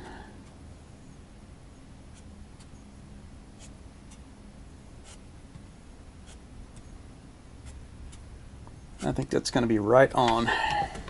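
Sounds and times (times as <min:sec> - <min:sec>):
fan blades ticking on wood: 0:07.6 - 0:11.0.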